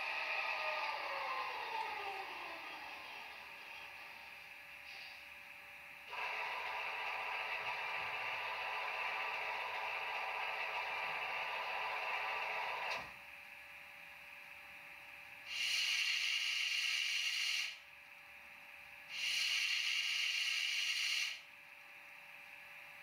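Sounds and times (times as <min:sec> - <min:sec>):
air compressor sound: 0:00.0 - 0:13.2, 0:15.4 - 0:17.9, 0:19.1 - 0:21.5
steady hum: 0:00.0 - 0:15.5.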